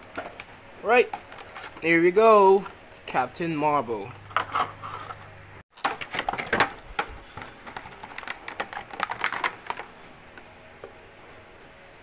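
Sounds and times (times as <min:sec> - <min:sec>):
plastic packaging crinkling: 0:07.6 - 0:09.9.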